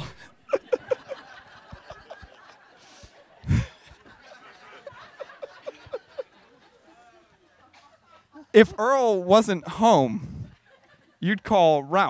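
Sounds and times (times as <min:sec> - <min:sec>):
audience laughing: 0:00.0 - 0:08.9.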